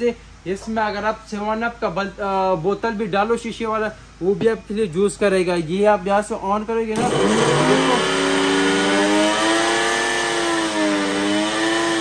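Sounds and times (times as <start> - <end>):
blender motor whine: 7.0 - 12.0.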